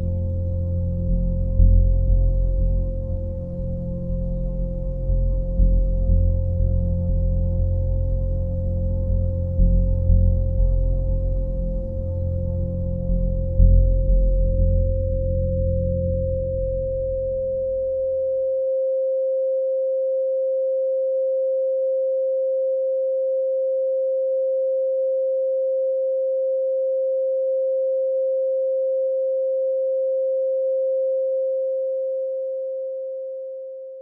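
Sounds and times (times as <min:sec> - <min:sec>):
deep hum: 0:00.0 - 0:18.5
steady electronic tone: 0:00.0 - 0:18.8.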